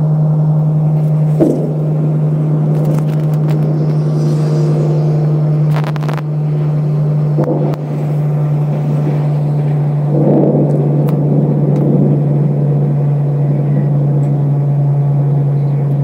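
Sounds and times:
steady low hum: 0.0s - 16.0s
thunder rumbling: 0.7s - 16.0s
sharp clicks: 5.7s - 6.3s.

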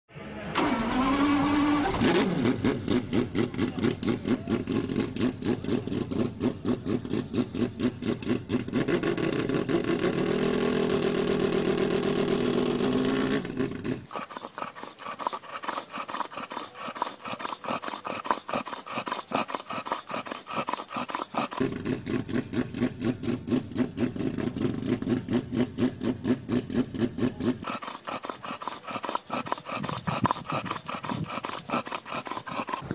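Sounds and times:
dog panting: 14.1s - 21.6s, 27.6s - 32.9s
rotary engine idling: 27.6s - 32.9s.

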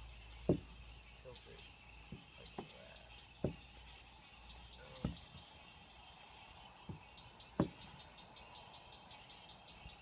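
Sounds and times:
crickets chirping: 0.0s - 10.0s
knocks on deck boards: 0.4s - 0.8s, 2.0s - 3.8s, 4.9s - 5.5s, 6.8s - 8.0s.

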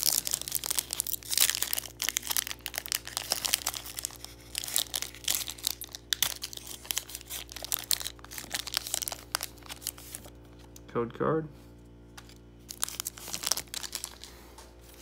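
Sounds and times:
foil wrapper being torn open: 0.0s - 10.3s, 12.6s - 14.3s.

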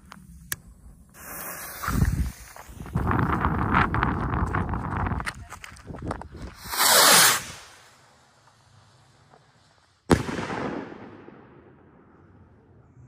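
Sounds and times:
firework launch hiss: 1.1s - 2.8s, 6.4s - 8.1s
firework bang with echo: 10.1s - 12.0s.

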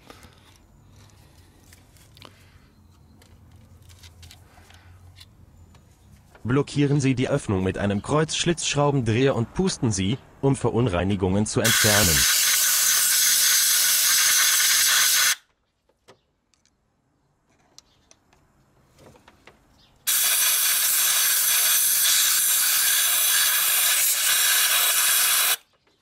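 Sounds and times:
compressed air blow gun hissing: 11.7s - 15.4s, 20.1s - 25.6s.

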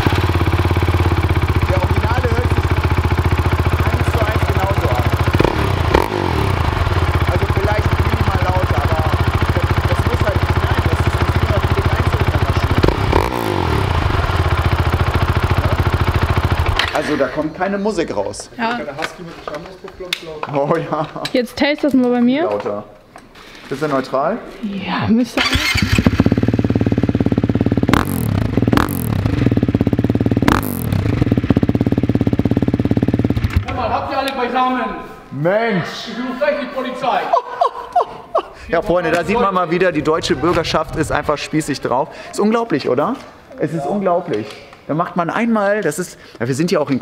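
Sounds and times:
motorcycle engine idling: 0.0s - 17.3s, 25.4s - 33.9s.

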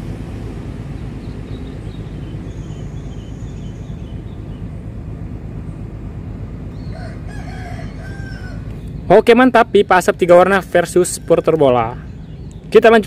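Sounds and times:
faint bird chirps: 1.0s - 4.7s.

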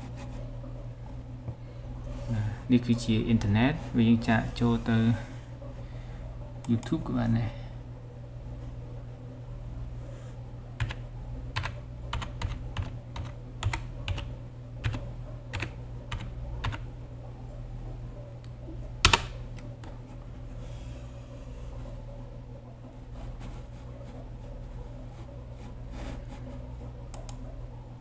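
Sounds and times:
computer keyboard typing: 10.8s - 16.9s.

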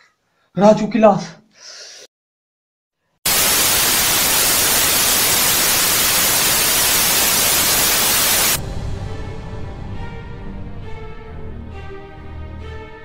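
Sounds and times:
television static hiss: 3.3s - 8.6s.

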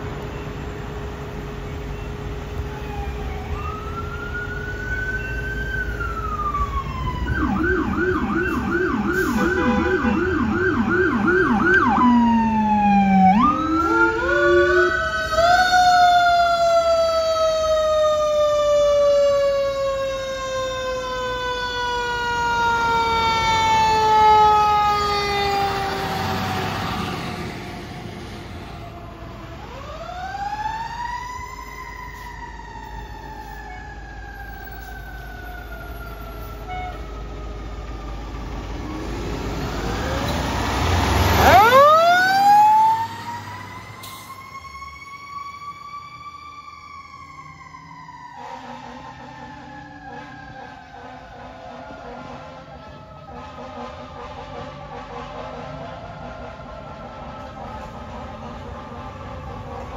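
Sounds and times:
electronic siren wailing and yelping: 4.8s - 16.6s, 41.2s - 52.0s.

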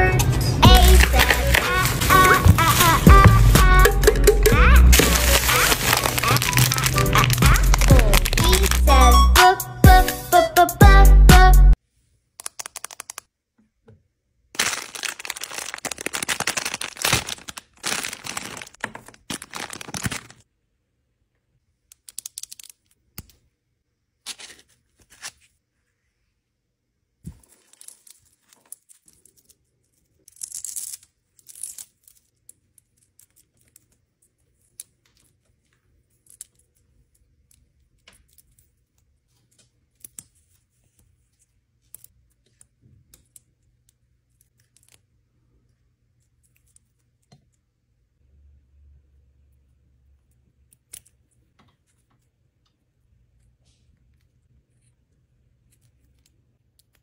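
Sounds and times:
plastic packaging crinkling: 0.6s - 3.6s, 4.8s - 9.1s, 14.6s - 20.4s
plastic beads clicking: 5.0s - 8.9s, 12.4s - 13.3s, 21.9s - 23.4s.

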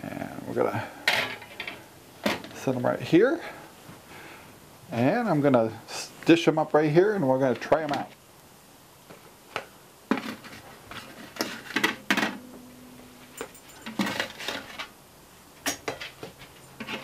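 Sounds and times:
ceramic plates clinking: 13.2s - 14.8s.

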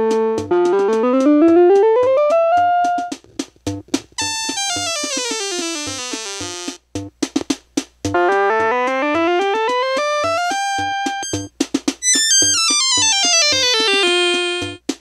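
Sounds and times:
electronic keyboard note runs: 4.2s - 6.8s, 10.6s - 11.5s
steady electronic beat: 4.2s - 7.1s, 9.4s - 14.8s.

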